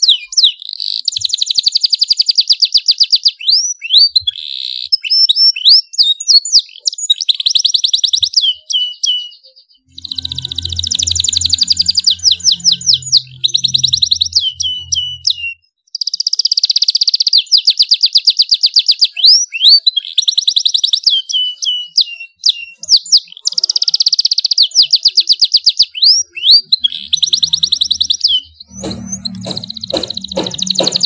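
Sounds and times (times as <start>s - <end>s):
canary singing trills: 0.0s - 31.0s.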